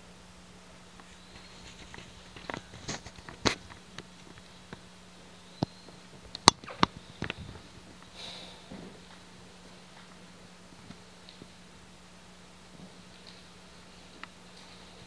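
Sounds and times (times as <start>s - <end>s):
steady low hum: 0.0s - 15.0s
soft rustle: 1.0s - 4.8s, 12.8s - 15.0s.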